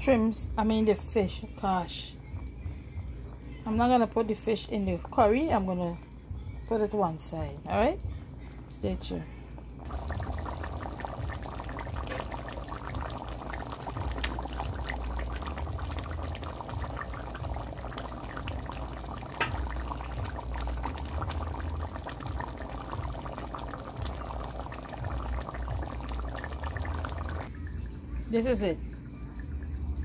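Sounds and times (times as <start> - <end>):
thick sauce bubbling and popping: 8.0 - 27.6.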